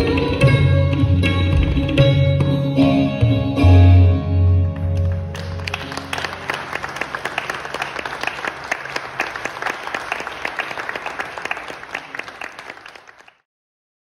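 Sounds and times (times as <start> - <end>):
audience applauding: 4.9 - 13.5.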